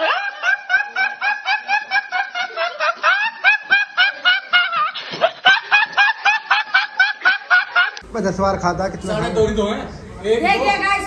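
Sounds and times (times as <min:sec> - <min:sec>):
teenage boy laughing: 0:00.0 - 0:08.0.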